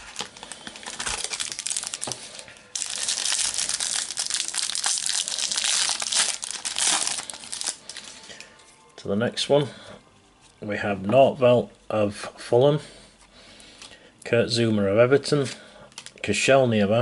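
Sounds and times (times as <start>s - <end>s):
foil wrapper crinkling and tearing: 0.0s - 8.2s.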